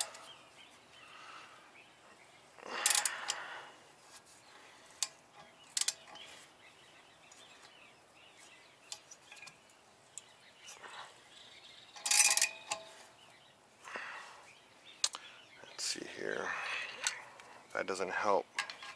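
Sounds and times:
sharp metal clicks: 2.8 - 3.4, 5.0 - 6.3, 11.9 - 12.9
socket wrench ratcheting: 2.8 - 3.4, 5.7 - 6.2, 12.0 - 12.8.

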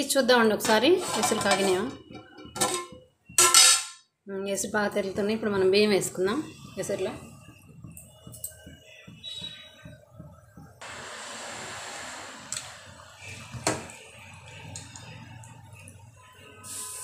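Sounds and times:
water boiling in a pot: 5.2 - 17.0.

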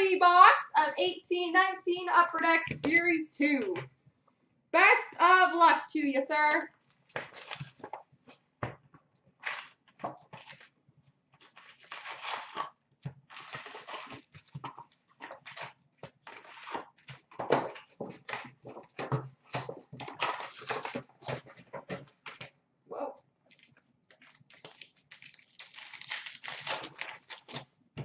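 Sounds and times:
cardboard box tearing: 11.4 - 14.6, 24.6 - 27.6.

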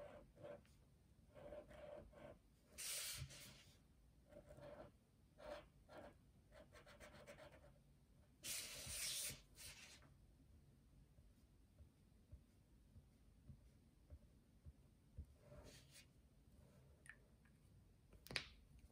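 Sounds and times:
felt-tip marker scratching on paper: 1.3 - 3.6, 4.3 - 7.7
paper rubbing on table: 8.4 - 10.0.

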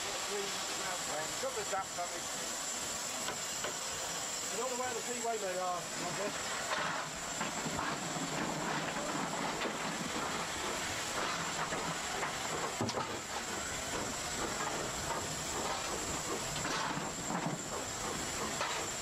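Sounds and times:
steam hissing: 0.0 - 19.0.

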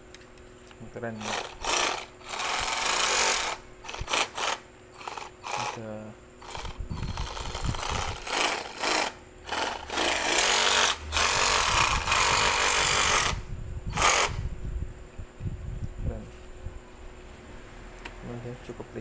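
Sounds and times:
cordless reciprocating saw running: 1.2 - 5.8, 6.4 - 14.4.

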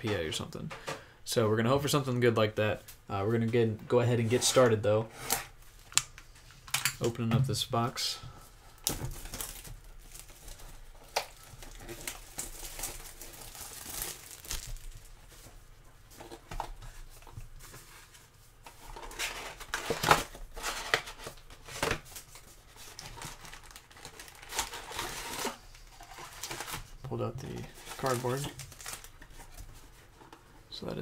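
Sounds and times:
plastic wrap crinkling and tearing: 8.8 - 15.3, 19.0 - 29.6.

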